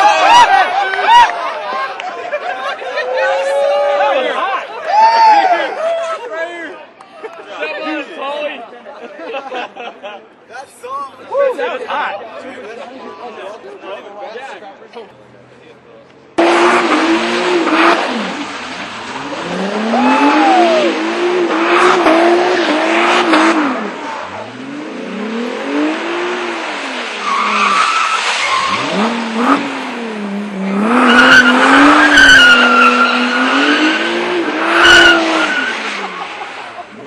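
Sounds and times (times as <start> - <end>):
car engine revving: 16.4 - 37.0.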